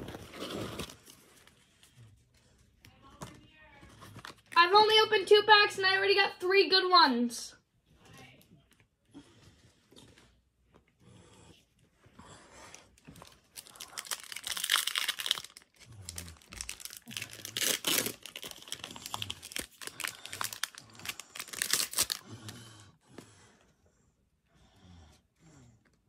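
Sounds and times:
foil wrapper tearing and crinkling: 13.5 - 22.2.

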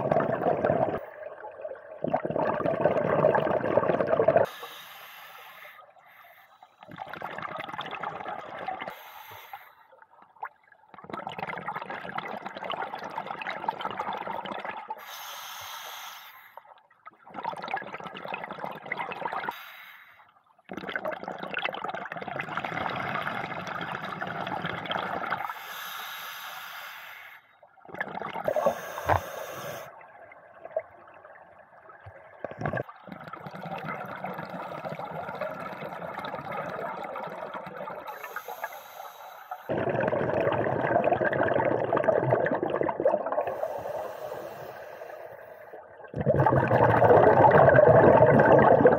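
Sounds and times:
bubbling exhalations underwater: 0.0 - 4.5, 6.9 - 8.9, 20.7 - 25.5, 27.9 - 29.4, 30.0 - 38.4, 39.7 - 43.8, 45.9 - 48.9
regulator inhalation hiss: 4.5 - 6.6, 15.0 - 16.5, 25.5 - 27.4, 28.6 - 29.9, 38.1 - 39.7, 43.5 - 45.6.

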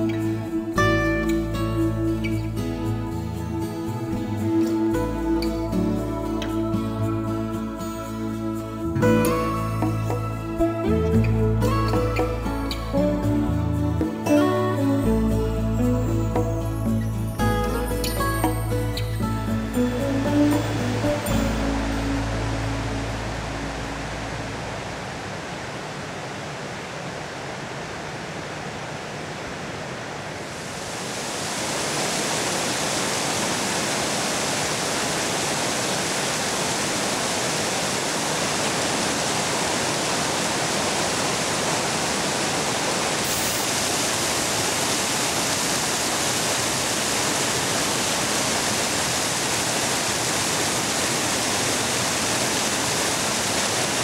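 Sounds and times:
river water rushing over stones: 15.7 - 54.0.

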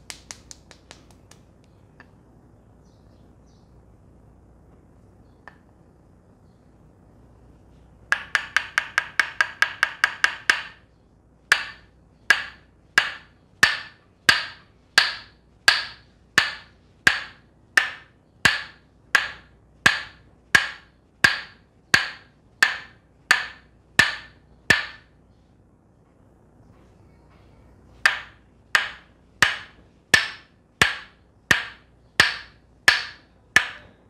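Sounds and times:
wooden mallet tapping wooden wedge: 8.1 - 10.8, 11.5 - 25.1, 28.0 - 34.0.

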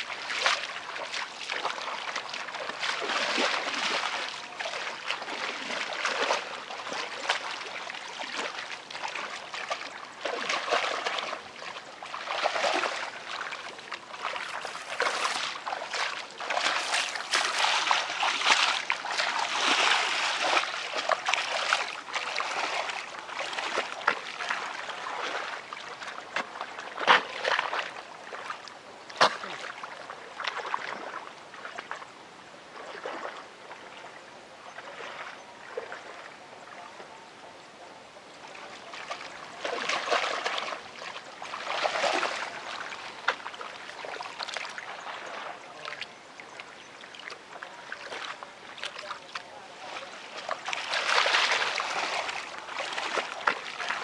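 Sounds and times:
splashing in muddy water: 0.0 - 32.1, 32.7 - 34.0, 34.6 - 36.9, 38.4 - 54.0
sharp water slaps: 14.2 - 24.3, 29.2 - 29.7.

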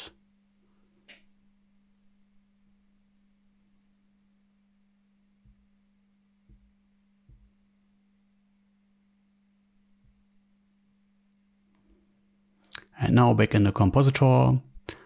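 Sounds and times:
faint low hum: 0.0 - 15.0
soft low thumps: 5.4 - 7.8, 9.9 - 10.4.

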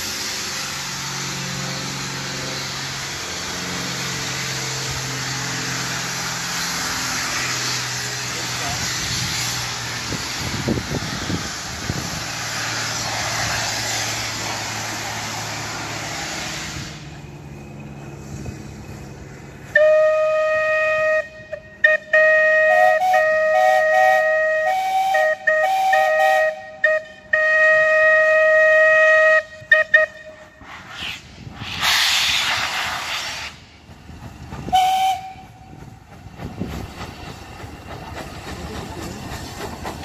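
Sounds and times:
steam hissing: 0.0 - 20.8, 29.2 - 40.0
locomotive whistle: 19.6 - 30.7, 34.7 - 35.8.

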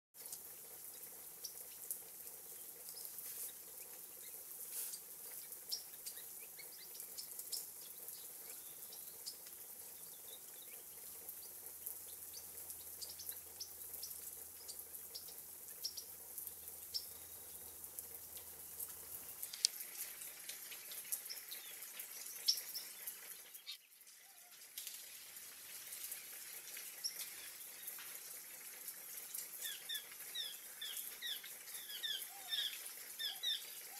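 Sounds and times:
sprinkler water hiss: 0.2 - 33.9.

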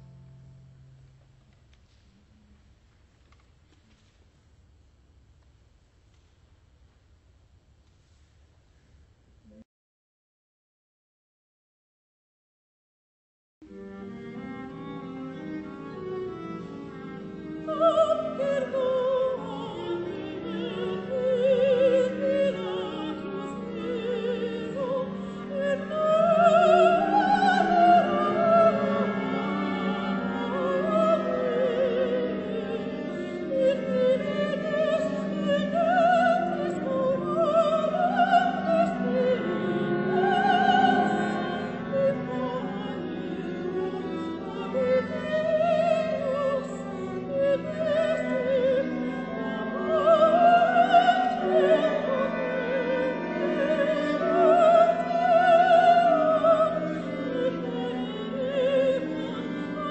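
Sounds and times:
person singing with wide vibrato: 16.6 - 59.9.

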